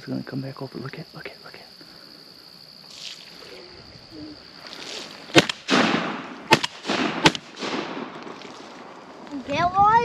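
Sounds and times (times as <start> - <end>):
shotgun blasts with echo: 5.3 - 8.2.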